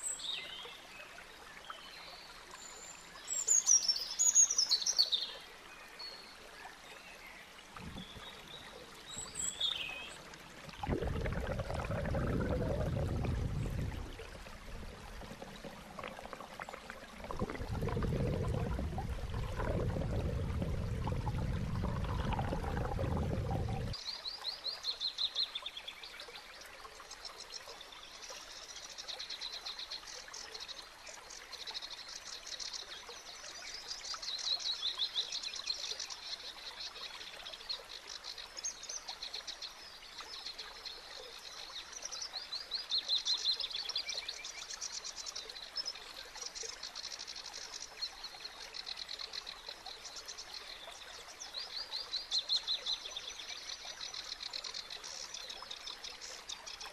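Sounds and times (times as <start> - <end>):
faint water trickle: 0.0 - 56.9
muffled underwater rush: 7.6 - 24.0.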